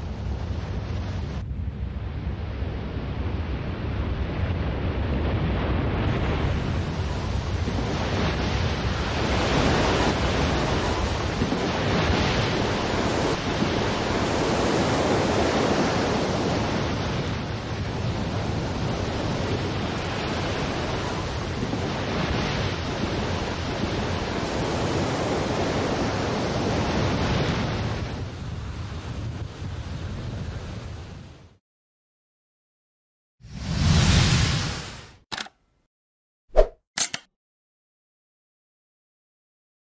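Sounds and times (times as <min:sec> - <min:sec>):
wind: 0:00.0 - 0:31.6
surging seawater: 0:02.9 - 0:31.4.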